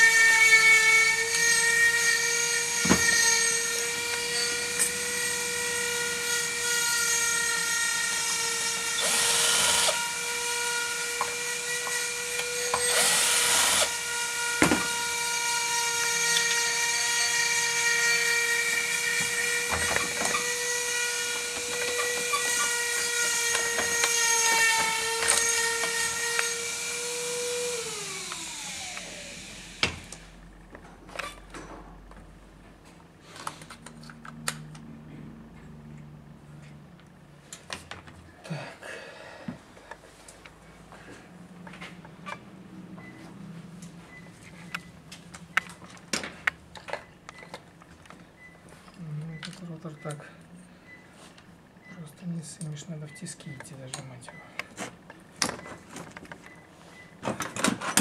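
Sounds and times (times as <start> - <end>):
electric motor whining: 0.0 - 30.4.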